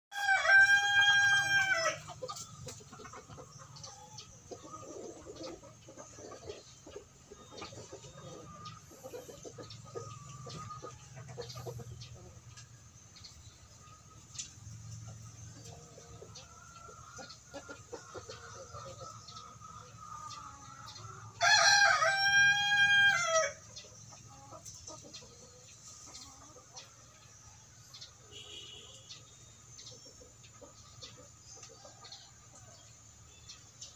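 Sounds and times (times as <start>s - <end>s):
rooster crowing: 0.1s - 2.1s, 21.3s - 23.6s
chicken clucking: 0.1s - 33.9s.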